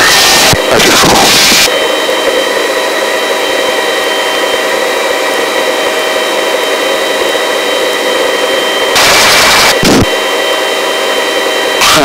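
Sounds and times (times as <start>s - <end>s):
helicopter engine and rotor: 0.0s - 12.0s
turbine whine: 0.0s - 12.0s.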